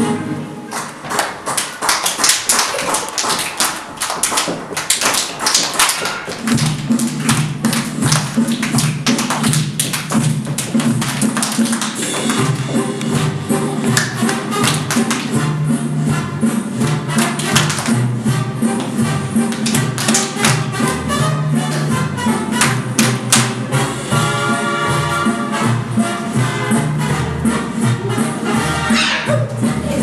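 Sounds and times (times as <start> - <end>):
dance music: 0.0 - 30.0
children clapping in time: 0.7 - 13.2, 13.8 - 15.4, 16.9 - 18.0, 18.8 - 21.0, 22.6 - 23.6.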